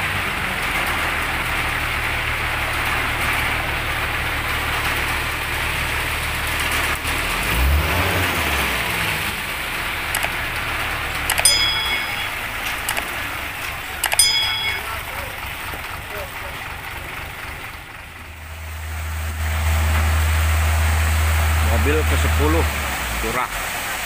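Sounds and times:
truck engine running: 0.0s - 24.0s
mouse click: 10.2s - 10.4s, 11.3s - 13.2s
short bell chime: 11.3s - 15.4s.

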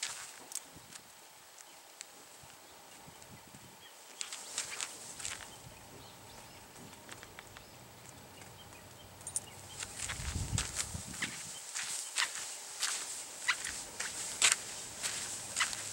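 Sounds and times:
dog scratching at dirt: 4.2s - 5.6s, 9.8s - 15.9s.

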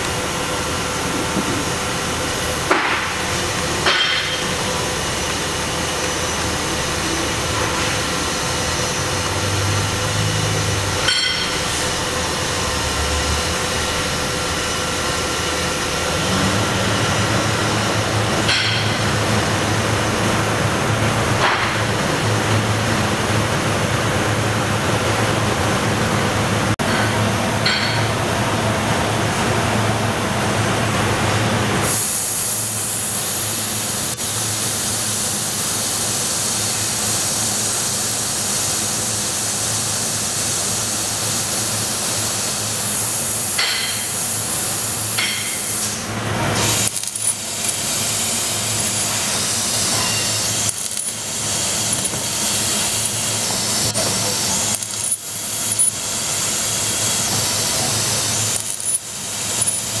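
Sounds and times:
laser cutter hissing: 31.8s - 60.0s.

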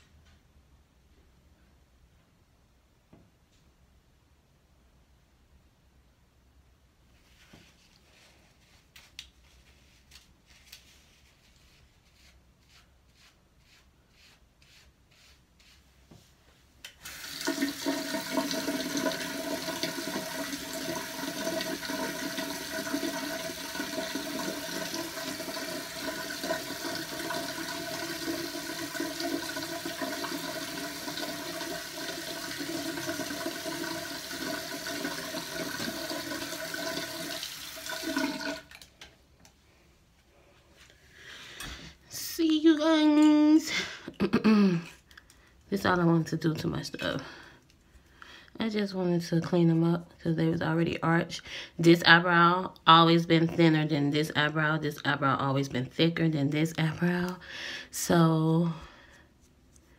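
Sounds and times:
toilet flushing and refilling: 16.9s - 38.9s.

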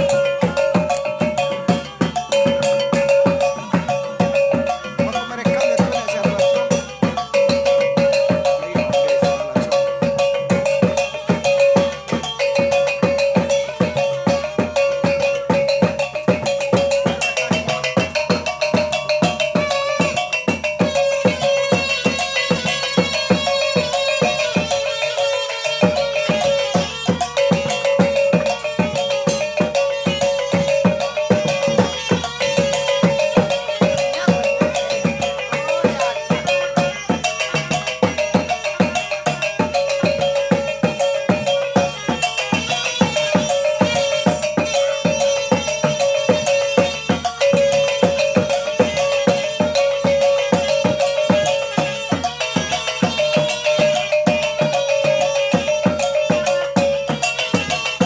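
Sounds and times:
low drum beat: 0.0s - 25.0s
small gong-chimes struck in rhythm: 0.0s - 58.0s.

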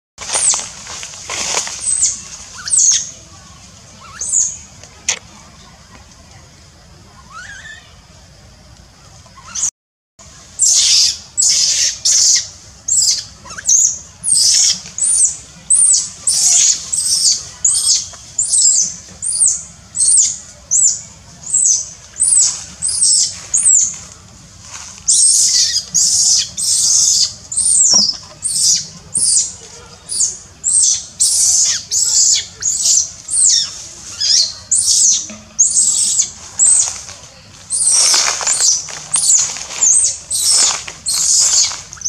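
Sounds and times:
baby monkey screaming: 1.8s - 3.1s, 4.0s - 4.6s, 7.2s - 7.9s, 9.4s - 9.7s, 10.6s - 23.8s, 25.1s - 29.5s, 30.1s - 36.9s, 37.7s - 42.0s.

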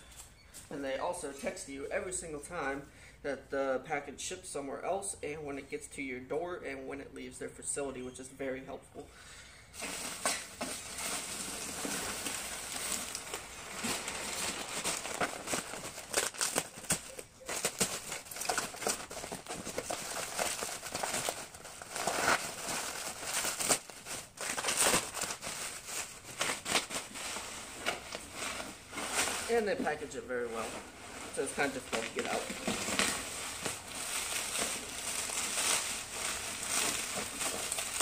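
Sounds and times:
bubble wrap crinkling and crackling: 9.7s - 38.0s.

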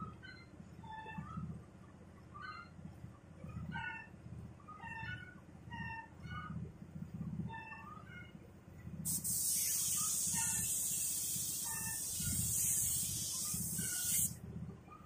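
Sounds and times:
spray gun hissing: 9.1s - 14.4s.

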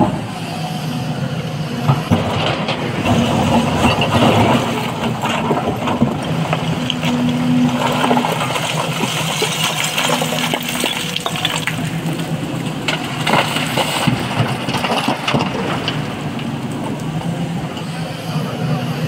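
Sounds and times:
excavator engine hum: 0.0s - 19.0s
broken stone clattering: 3.1s - 17.0s.

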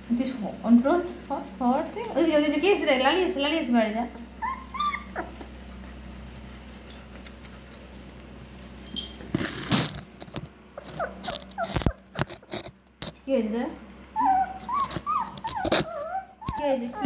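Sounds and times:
low steady hum: 0.0s - 17.0s
puppies whimpering: 4.4s - 5.6s, 10.8s - 12.5s, 14.2s - 17.0s.

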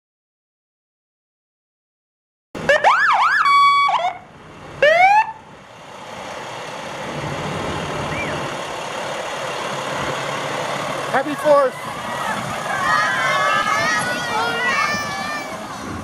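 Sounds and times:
fire engine siren wailing: 2.6s - 5.5s, 7.1s - 16.0s
fire engine engine running: 2.6s - 16.0s.

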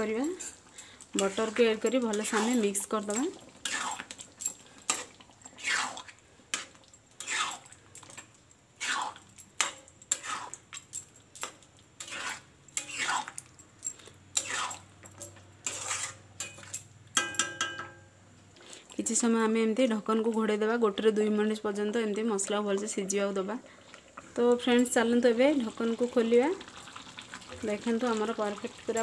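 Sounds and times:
spatula scraping a pan: 1.2s - 10.8s, 12.0s - 13.4s, 14.3s - 16.7s.

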